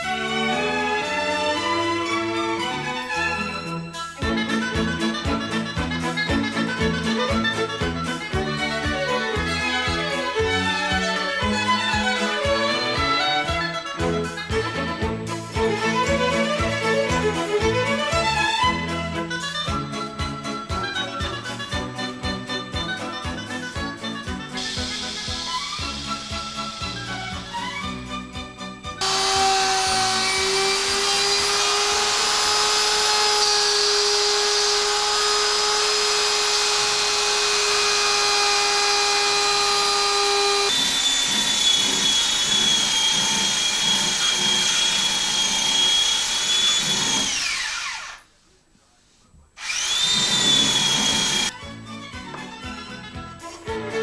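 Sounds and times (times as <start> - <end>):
music: 0.0 - 40.8, 49.6 - 54.0
electric router whining: 23.0 - 48.3, 49.6 - 52.8.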